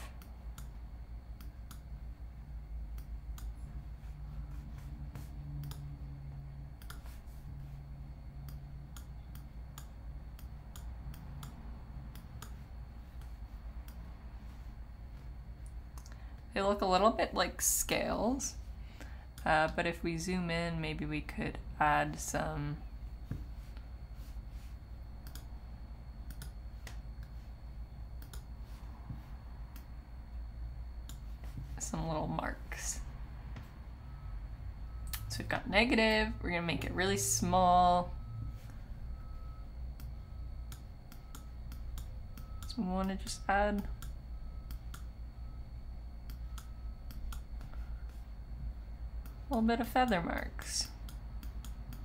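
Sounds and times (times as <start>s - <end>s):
low steady hum: 0.0s - 52.0s
computer mouse clicks: 0.1s - 0.8s, 1.4s - 1.9s, 5.6s - 5.9s, 6.8s - 7.1s, 8.4s - 14.1s, 25.2s - 25.5s, 26.2s - 27.4s, 28.2s - 28.5s, 46.2s - 47.8s, 50.8s - 52.0s.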